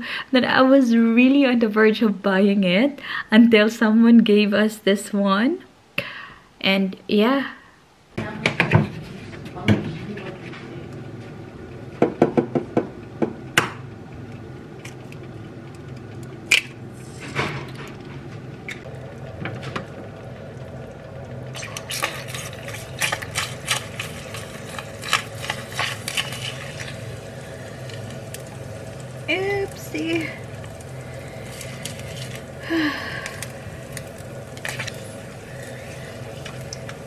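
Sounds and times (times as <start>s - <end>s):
eggs cracking on pan: 18.7s - 37.0s
eggs sizzling in frying pan: 18.8s - 37.0s.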